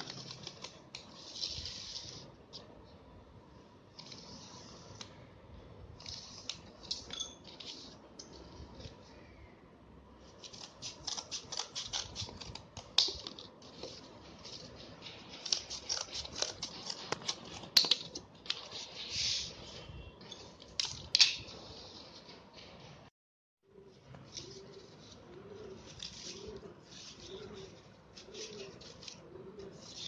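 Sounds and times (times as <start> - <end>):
scissors snipping cardboard: 15.2 - 18.6.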